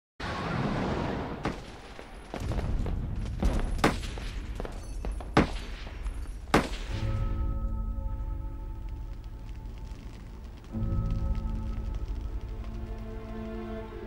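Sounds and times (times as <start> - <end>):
gunshots: 0.2 - 7.2
low rumble: 7.0 - 14.0
music with long held notes: 7.0 - 14.0.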